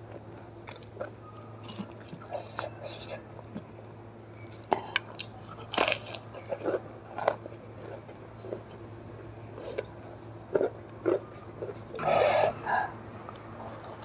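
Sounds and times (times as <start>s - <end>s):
low steady hum: 0.0s - 14.0s
chewing crisp food: 0.1s - 2.8s, 4.4s - 12.1s.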